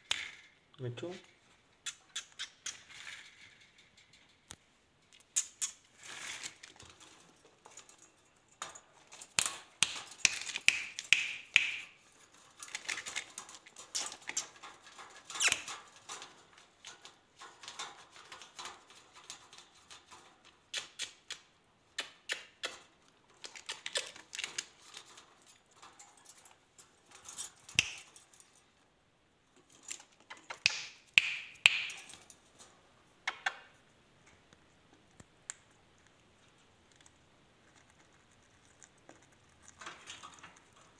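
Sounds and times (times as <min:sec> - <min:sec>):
wire bird cage rattling: 0:11.9 - 0:20.5, 0:23.4 - 0:28.6.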